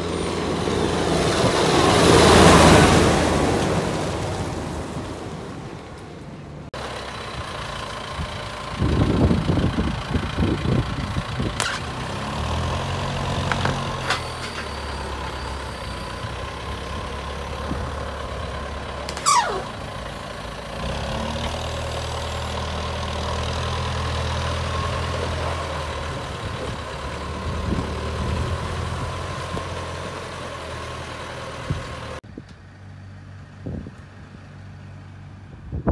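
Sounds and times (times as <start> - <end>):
tractor diesel engine revving: 0.0 - 32.2
falling whistle-like sound: 19.2 - 19.8.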